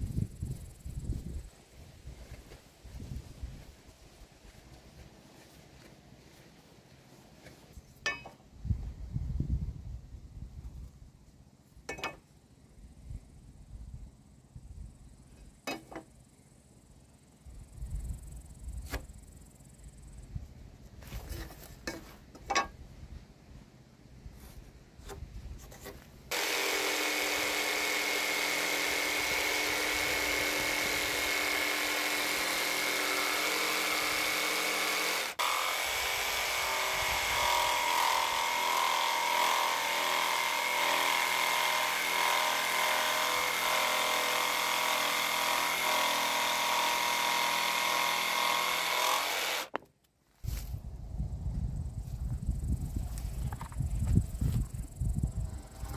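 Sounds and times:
knocks and scratches handling timber: 7.2s - 8.4s, 11.9s - 12.3s, 15.6s - 16.1s, 20.9s - 22.8s, 24.4s - 50.7s, 53.1s - 54.6s
jigsaw cutting wood: 26.3s - 49.8s.

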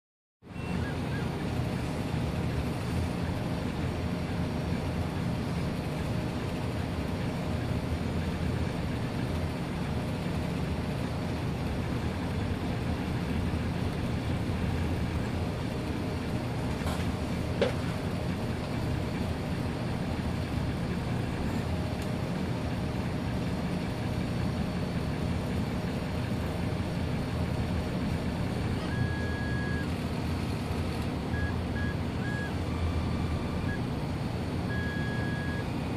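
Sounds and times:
cooling fans noise: 0.4s - 35.9s
stepper motors buzzing and whining: 0.6s - 35.9s
short high whines: 28.6s - 30.0s, 31.3s - 35.8s.

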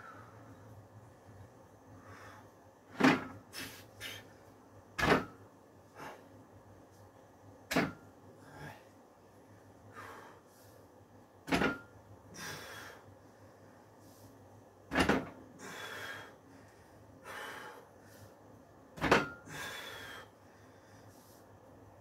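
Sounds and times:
hard breaths of effort: 9.6s - 10.9s, 12.3s - 14.3s, 15.5s - 18.4s, 19.3s - 21.5s.

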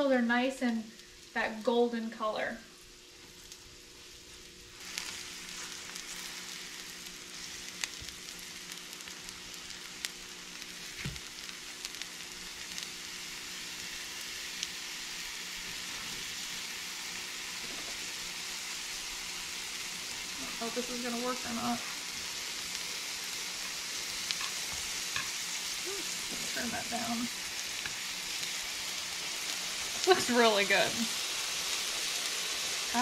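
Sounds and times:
mushrooms sizzling in frying pan: 0.0s - 33.0s
spatter pops: 4.7s - 16.3s, 21.9s - 30.3s.

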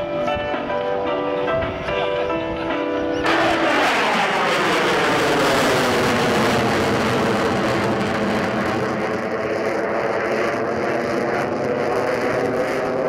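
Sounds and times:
jet engines flying overhead: 0.0s - 13.0s.

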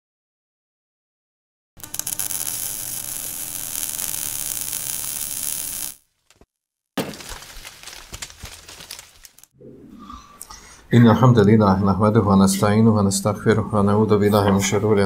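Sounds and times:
hissing static: 1.8s - 6.0s.

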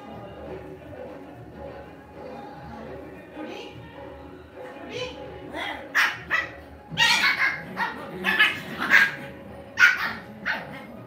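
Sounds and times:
dogs barking and yapping: 5.9s - 11.0s.

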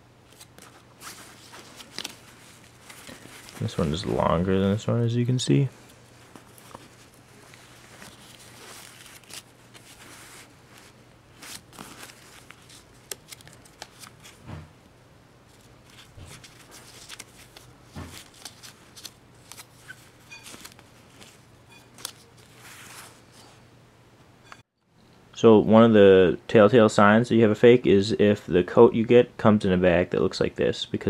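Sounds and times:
paper and fabric rustling: 0.3s - 14.5s, 15.5s - 23.6s.

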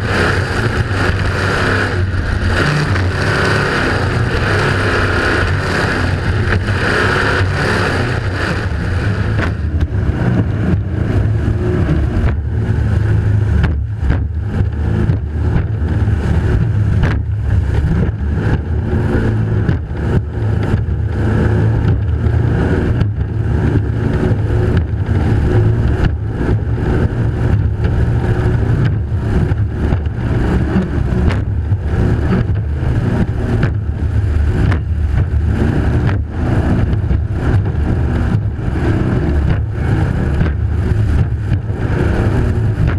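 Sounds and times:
powerboat engine drone: 0.0s - 42.9s
water noise: 0.0s - 42.9s
wind noise: 0.0s - 42.9s.

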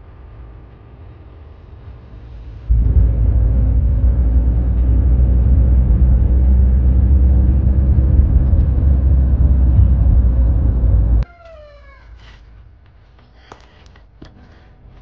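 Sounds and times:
car engine and tyre rumble: 0.0s - 11.2s.

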